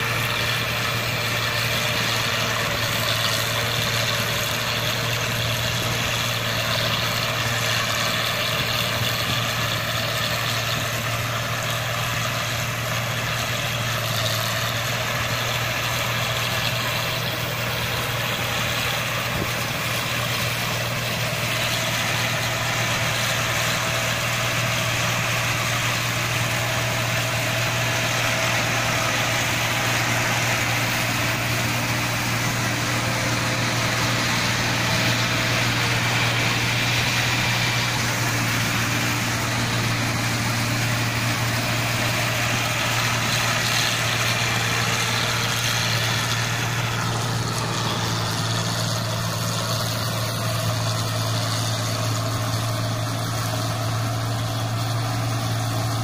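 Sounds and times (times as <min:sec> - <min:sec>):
combine harvester running: 0:00.0 - 0:56.0.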